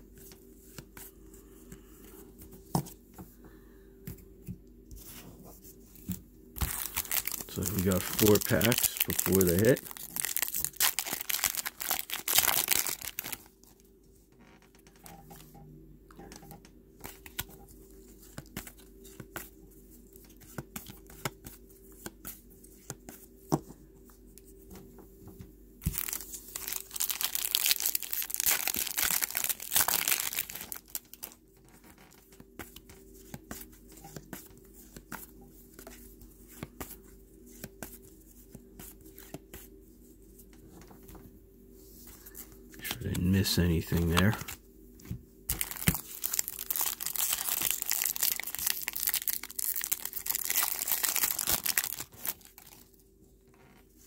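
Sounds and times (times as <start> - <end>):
foil wrappers tearing and crinkling: 6.6 - 13.5, 25.9 - 32.2, 45.5 - 52.9.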